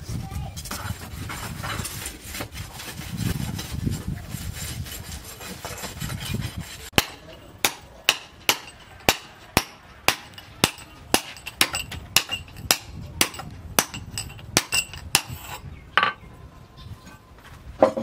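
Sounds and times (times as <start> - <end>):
hammer striking steel bar: 7.0 - 15.6.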